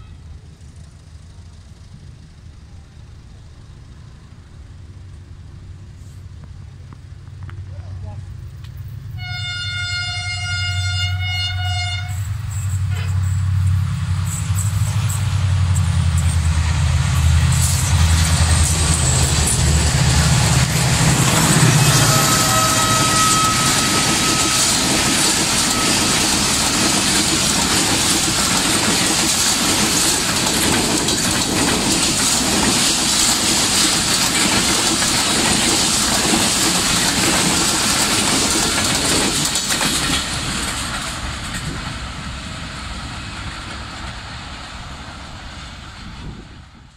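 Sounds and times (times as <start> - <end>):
deep locomotive engine drone: 0.0 - 46.9
train wheels clacking on rails: 10.9 - 45.9.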